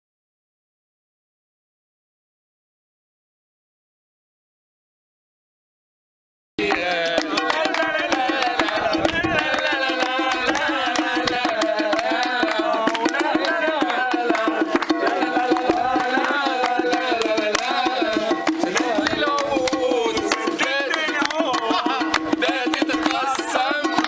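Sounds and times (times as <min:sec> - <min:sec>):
hand-drum folk music: 0:06.6 - 0:24.0.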